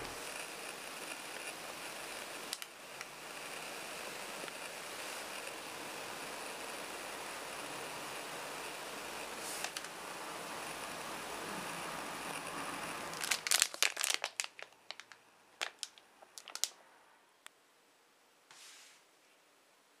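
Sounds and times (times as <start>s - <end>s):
steady hiss: 0.0s - 20.0s
plastic packaging crinkling: 13.1s - 16.8s.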